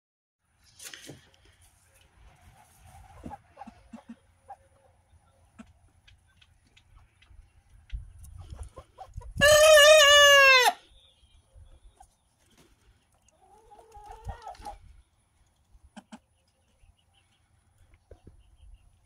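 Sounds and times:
hens clucking: 1.4 - 10.8, 11.8 - 19.0
rooster crowing: 9.4 - 10.8.

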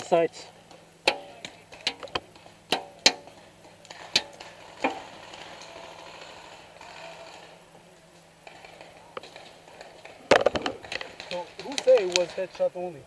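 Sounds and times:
soft steady noise: 0.0 - 13.0
paintball gun cracks: 8.6 - 12.4.

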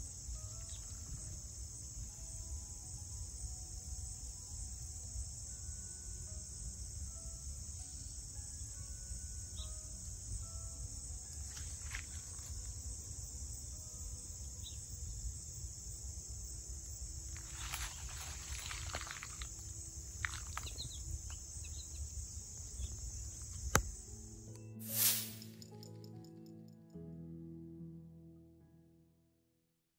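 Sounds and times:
crickets chirping: 0.0 - 26.6.

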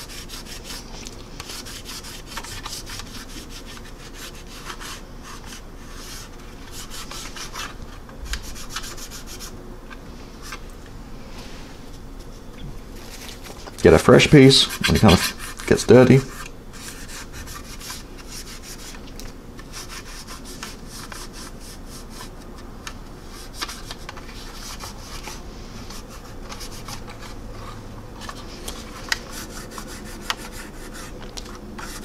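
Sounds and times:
paper towel rubbing plastic: 0.0 - 9.5, 13.0 - 19.0, 23.3 - 32.0.

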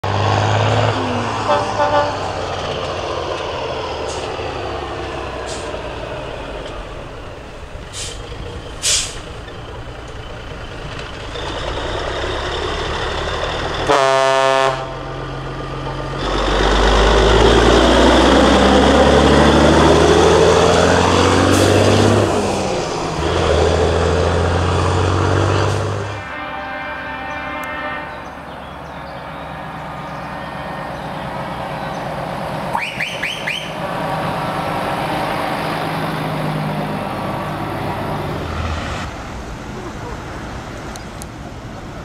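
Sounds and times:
diesel truck engine: 0.0 - 26.2, 28.3 - 42.0
truck air horn blast: 1.0 - 2.5, 13.8 - 15.0, 25.6 - 28.5
air brake hisses: 7.9 - 9.3.

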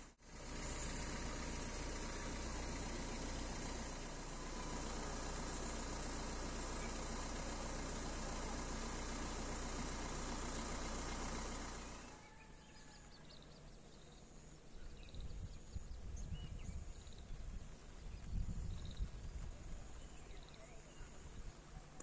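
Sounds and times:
birds chirping: 0.0 - 22.0
wind rumble on microphone: 15.0 - 21.6.

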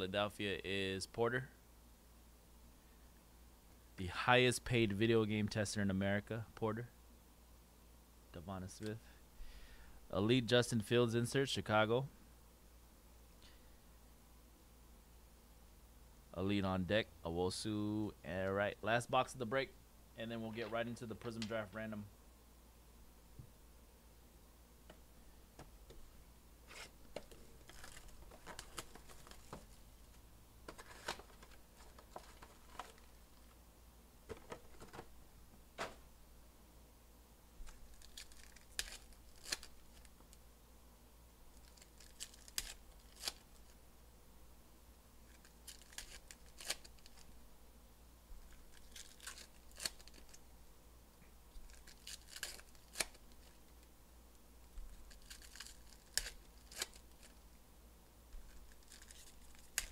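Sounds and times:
foil wrappers crinkling and tearing: 26.8 - 29.8, 30.8 - 33.4, 37.6 - 40.1, 41.5 - 43.8, 45.3 - 47.3, 48.4 - 50.4, 51.6 - 53.8, 54.9 - 57.4, 58.4 - 59.9.

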